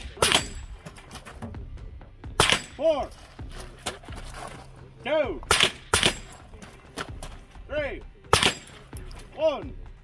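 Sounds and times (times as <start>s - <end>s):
rifle shots: 0.0s - 0.8s, 2.4s - 2.8s, 5.5s - 6.4s, 8.3s - 8.8s.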